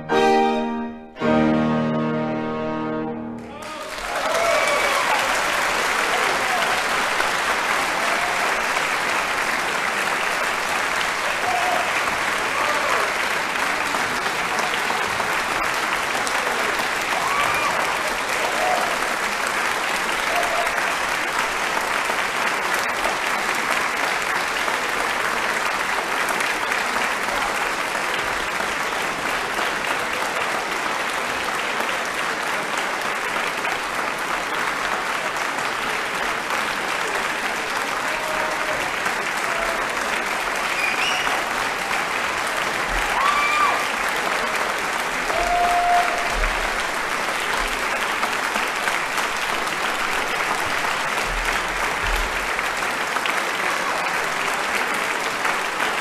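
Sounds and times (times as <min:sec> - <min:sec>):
audience applauding: 0:02.8 - 0:56.0.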